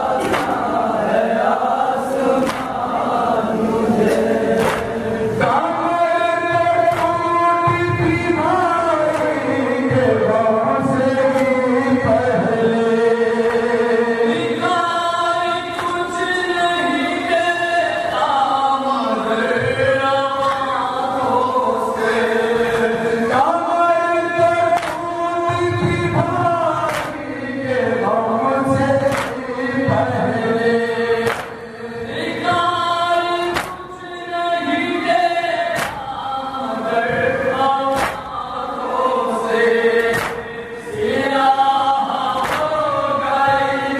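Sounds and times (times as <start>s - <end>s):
men chanting together: 0.0s - 43.9s
chest-beating hand strikes: 0.2s - 0.7s, 6.9s - 7.8s, 31.2s - 31.6s, 33.5s - 33.8s, 35.8s - 36.1s, 37.9s - 38.4s, 40.0s - 40.5s.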